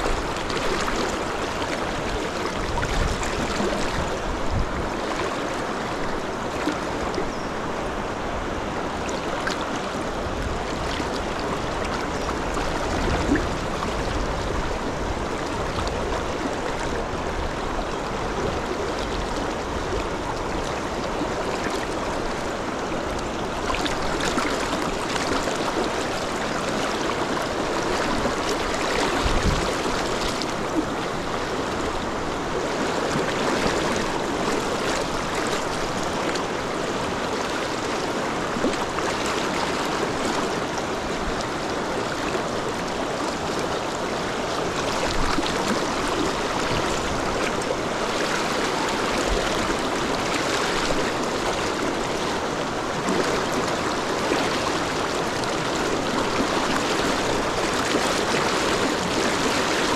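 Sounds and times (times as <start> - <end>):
river rapids rushing: 0.0 - 59.9.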